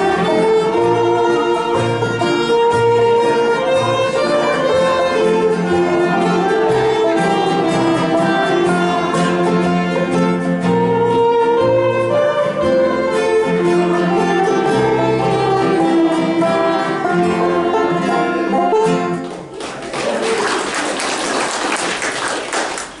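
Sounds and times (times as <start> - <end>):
fiddle banjo and guitar playing: 0.0 - 19.5
audience applause: 19.2 - 23.0.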